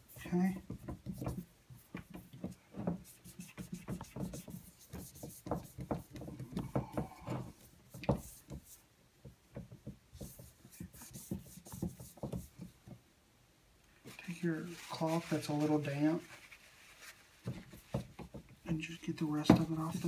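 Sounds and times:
cloth scrubbing on glass: 0.0s - 8.8s, 10.2s - 12.7s, 14.0s - 18.4s.

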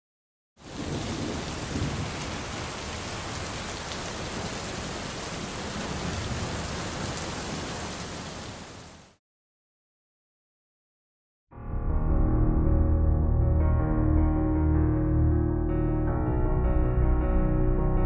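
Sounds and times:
rain on wet road: 0.6s - 9.2s.

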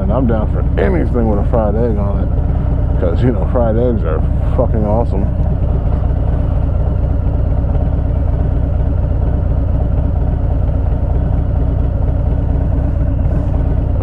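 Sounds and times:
motorcycle engine idling: 0.0s - 14.0s.

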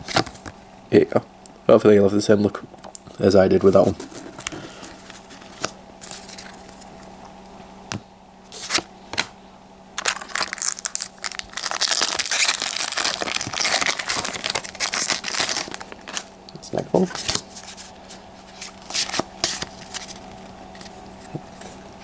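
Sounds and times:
foil wrapper crinkling: 10.0s - 16.3s.

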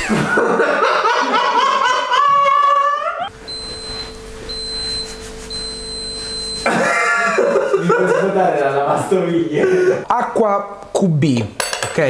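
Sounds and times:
faint hum: 3.1s - 8.2s.

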